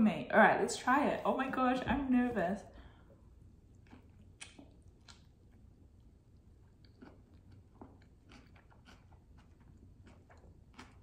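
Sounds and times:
faint chewing: 0:03.7 - 0:11.0.

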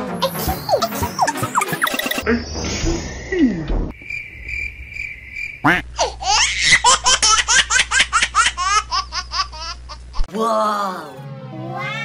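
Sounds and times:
cricket chirping: 0:01.9 - 0:06.5.

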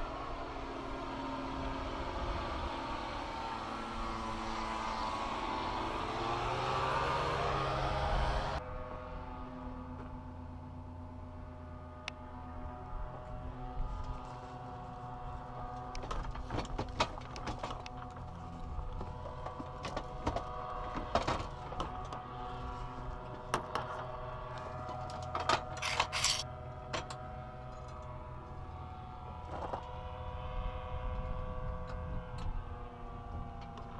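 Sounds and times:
metal frame clicks and rattles: 0:25.0 - 0:26.4.

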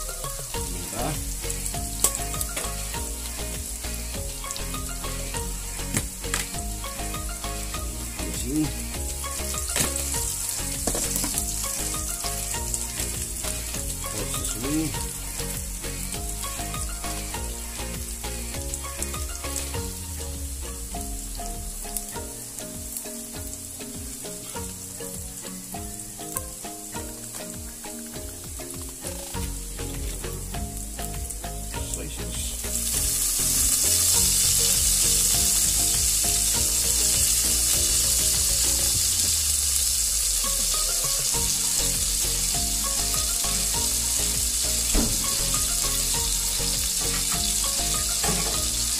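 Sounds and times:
onion and garlic sizzling in oil: 0:00.0 - 0:48.9.

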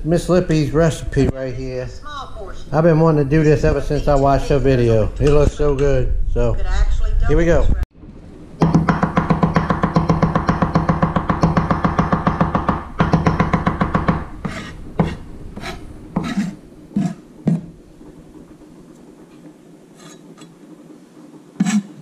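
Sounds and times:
knife chopping on wooden board: 0:08.6 - 0:17.7.

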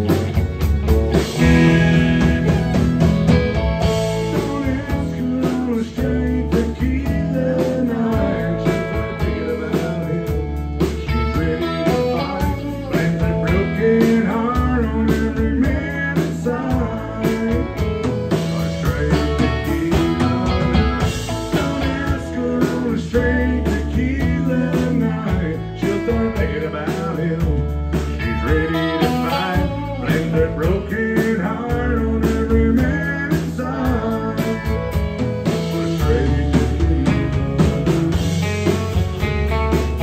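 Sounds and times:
live country band playing: 0:00.0 - 0:40.0
male lead vocal: 0:03.8 - 0:38.5.

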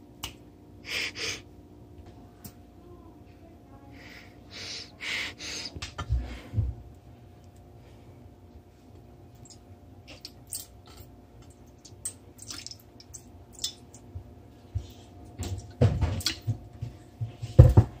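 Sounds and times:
juice splashing into glass dish: 0:11.7 - 0:14.1.

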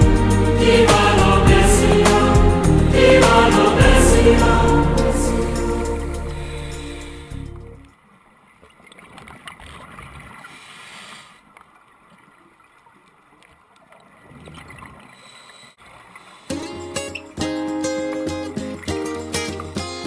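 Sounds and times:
music: 0:00.0 - 0:07.8, 0:16.5 - 0:20.0.

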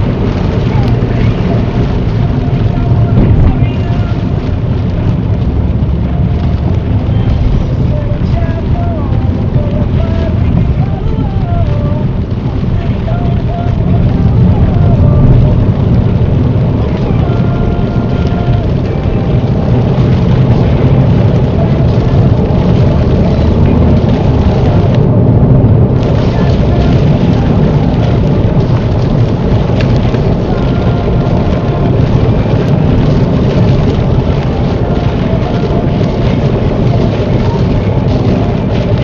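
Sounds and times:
rain hitting car windscreen: 0:00.0 - 0:39.0
road and tyre noise: 0:00.0 - 0:39.0.

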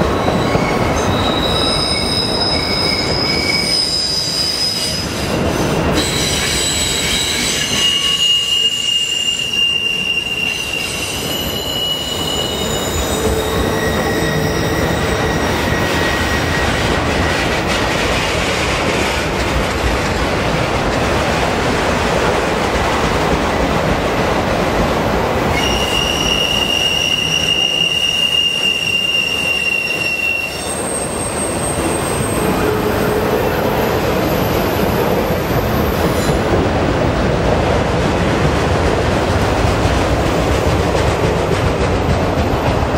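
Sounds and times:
train wheels rumbling on rails: 0:00.0 - 0:42.9
high-pitched wheel squeal: 0:00.1 - 0:05.3, 0:06.0 - 0:16.9, 0:25.5 - 0:35.0.

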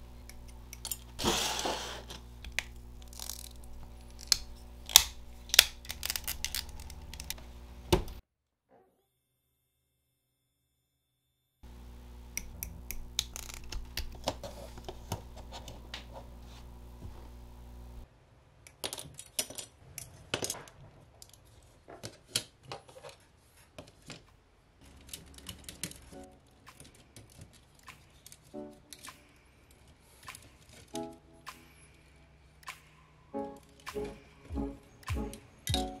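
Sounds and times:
nippers cutting plastic: 0:00.1 - 0:08.2, 0:12.3 - 0:16.1
plastic clicks and snaps: 0:02.4 - 0:08.2, 0:12.3 - 0:14.4
low hum: 0:11.6 - 0:18.0.

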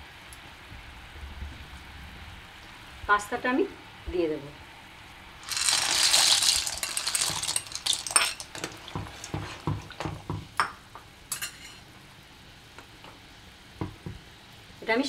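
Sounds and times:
pasta poured into boiling water: 0:05.4 - 0:10.5
spoon stirring and knocking pan: 0:05.7 - 0:11.8.

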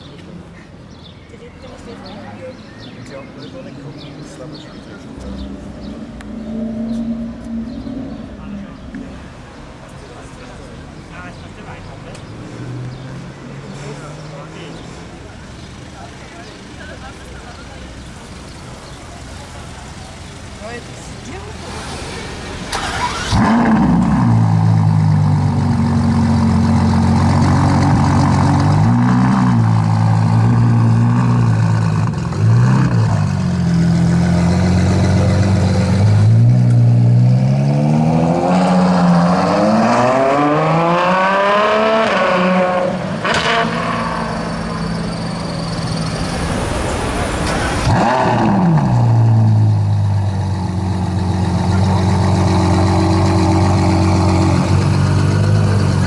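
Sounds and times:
exhaust crack: 0:21.6 - 0:37.4
car engine revving: 0:21.6 - 0:56.0.

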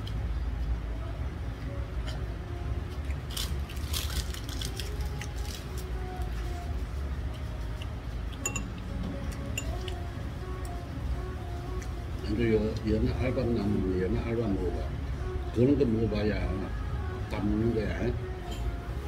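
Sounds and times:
steady low hum: 0:00.0 - 0:19.0
utensils clinking on dishes: 0:08.3 - 0:10.0, 0:18.4 - 0:18.9.

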